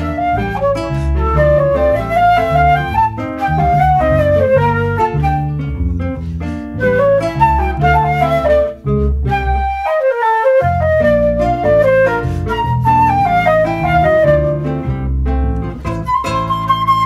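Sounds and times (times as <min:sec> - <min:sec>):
electric bass guitar: 0:00.0 - 0:09.8, 0:10.6 - 0:17.0
flute melody: 0:00.0 - 0:17.0
nylon-string guitar: 0:00.0 - 0:17.0.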